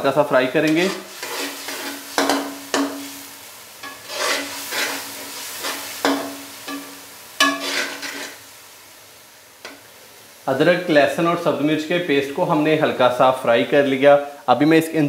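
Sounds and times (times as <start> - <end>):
paste sizzling in hot oil: 0.4 - 13.2
metal spoon scraping a pan: 0.6 - 3.2, 3.8 - 8.4.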